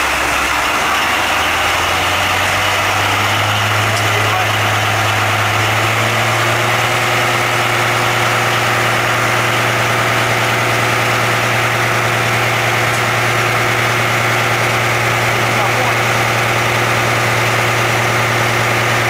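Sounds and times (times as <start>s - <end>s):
railcar engine drone: 0.0s - 19.0s.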